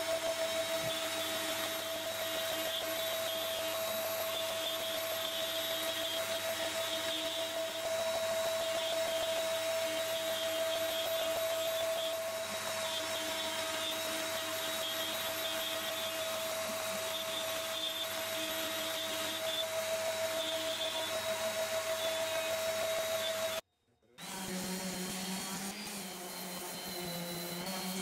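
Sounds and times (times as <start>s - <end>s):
router spindle whining: 0.0s - 23.6s, 24.2s - 28.0s.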